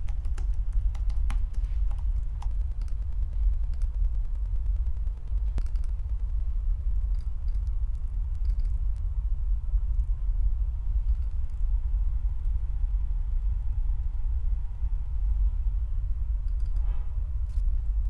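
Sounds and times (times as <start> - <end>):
faint clicks: 0.0 - 9.1.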